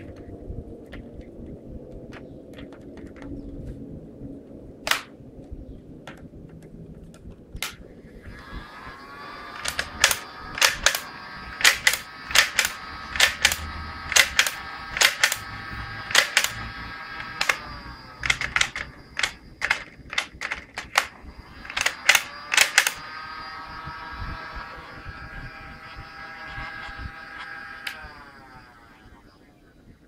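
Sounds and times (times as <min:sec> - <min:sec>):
steady high whine: 0:00.0 - 0:30.0
toy blaster mechanism clicking: 0:04.9 - 0:05.1, 0:07.6 - 0:29.2.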